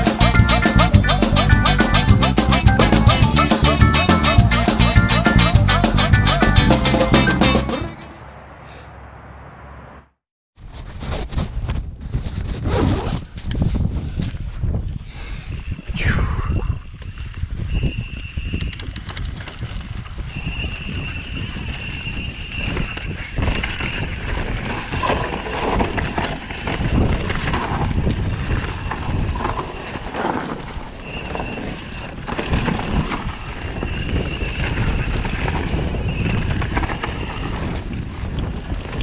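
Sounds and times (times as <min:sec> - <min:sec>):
wind buffeting microphone: 0:10.6 - 0:39.0
tyres rumbling over trail: 0:19.2 - 0:39.0.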